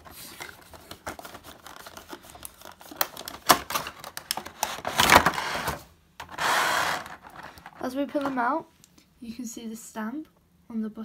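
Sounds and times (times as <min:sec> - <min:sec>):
loud plastic rustling: 0:00.0 - 0:07.9
packaging clicks and rustles: 0:00.0 - 0:08.3.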